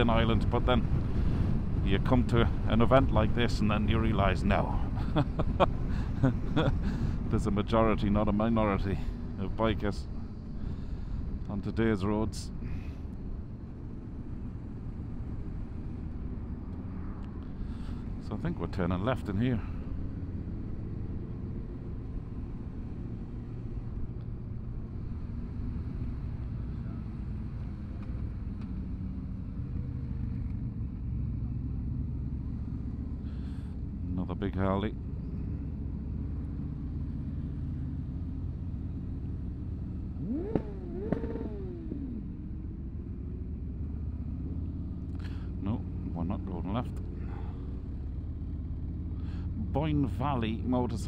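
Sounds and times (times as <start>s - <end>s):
motorcycle engine droning: 13.7s - 51.0s
motorcycle engine running: 35.0s - 51.0s
engine revving: 39.7s - 42.6s.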